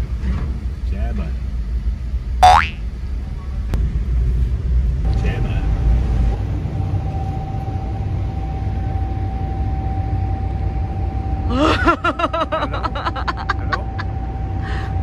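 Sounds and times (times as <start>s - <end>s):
ferry engine rumble: 0.0s - 15.0s
person laughing: 11.5s - 14.1s.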